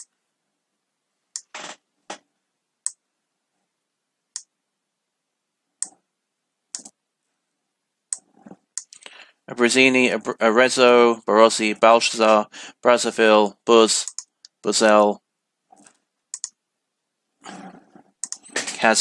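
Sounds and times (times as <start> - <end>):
computer mouse clicks: 6.7 - 7.0, 14.0 - 14.6, 15.8 - 16.6, 18.2 - 18.5.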